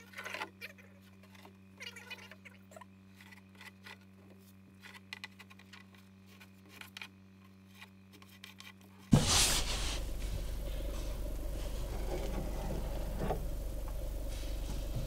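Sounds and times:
steady low hum: 9.0s - 15.0s.

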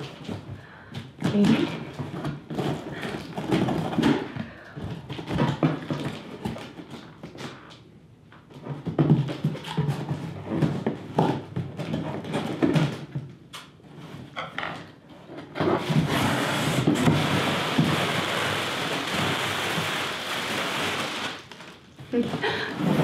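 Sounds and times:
plastic packing crinkling: 17.1s - 23.0s.

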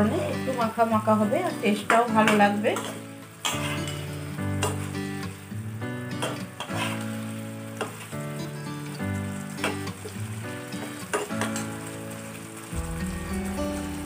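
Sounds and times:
food sizzling in a frying pan: 0.0s - 14.0s
soft background music: 0.0s - 14.0s
metal spatula scraping a pan: 1.7s - 5.1s, 6.2s - 8.1s.

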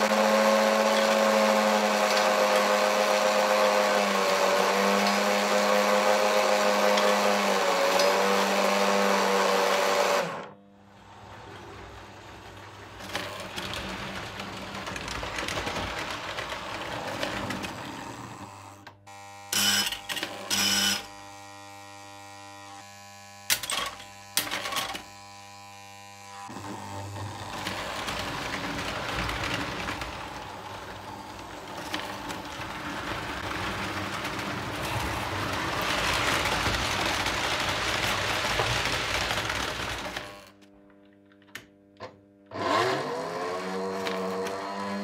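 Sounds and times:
model train whirring rumble: 0.0s - 19.0s, 26.5s - 40.5s.

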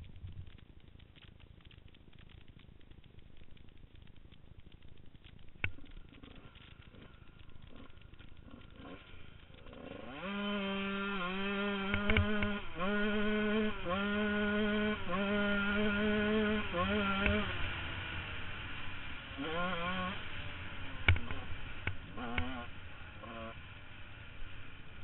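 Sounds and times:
dirt bike engine revving: 6.2s - 25.0s.

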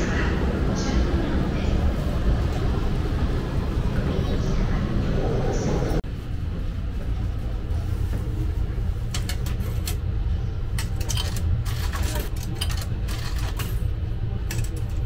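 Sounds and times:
steady low rumble: 0.0s - 15.0s
coins clinking into slot: 10.8s - 13.8s.

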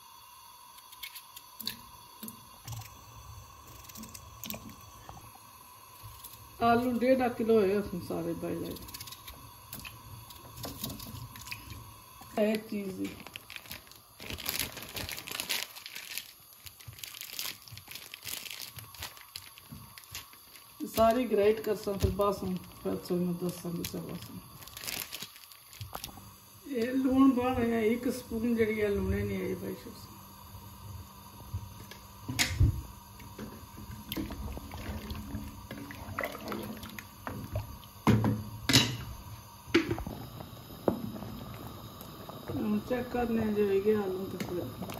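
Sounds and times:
water sloshing in a pot: 1.0s - 14.4s, 31.5s - 44.9s
plastic wrapper crinkling: 12.4s - 26.2s.

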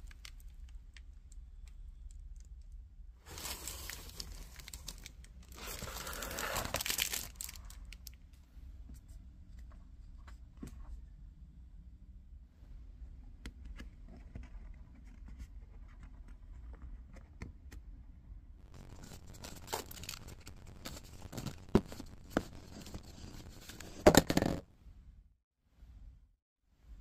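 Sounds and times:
paper tearing and crinkling: 3.3s - 7.8s, 18.7s - 24.5s
paper wrapping scratched: 3.3s - 7.8s, 18.6s - 24.6s
loud paper rip: 5.6s - 7.3s.

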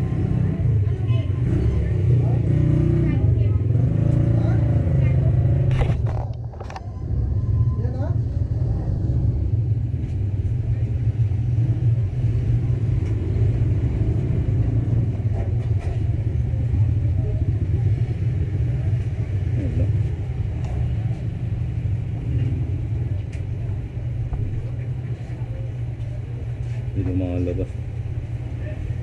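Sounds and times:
steady low rumble: 0.0s - 29.0s
faint voices: 15.0s - 29.0s.

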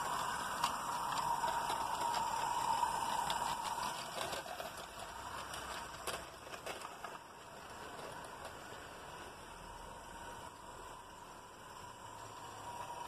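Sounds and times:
steam locomotive hissing: 0.0s - 6.0s, 8.8s - 13.0s.

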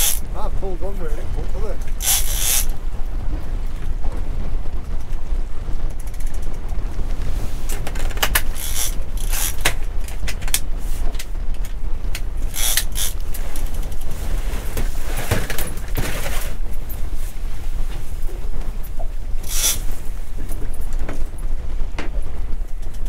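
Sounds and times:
mechanical creaking and clicking: 0.0s - 0.2s, 1.8s - 2.7s, 7.9s - 9.8s, 12.5s - 13.8s, 19.4s - 19.8s
steady low rumble: 0.0s - 23.0s.

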